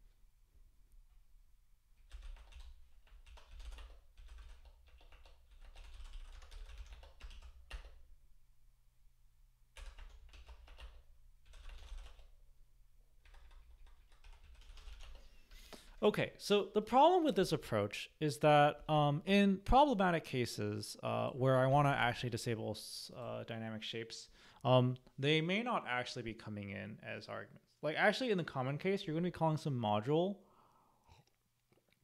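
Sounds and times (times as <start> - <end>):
faint keyboard typing: 2.0 - 8.0, 9.7 - 12.4, 13.2 - 15.4.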